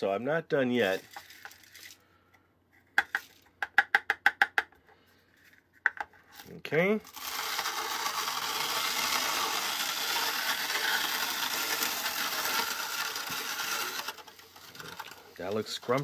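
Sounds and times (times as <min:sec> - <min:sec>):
plastic grinder crunching cereal: 0:00.8 - 0:02.1, 0:06.4 - 0:16.0.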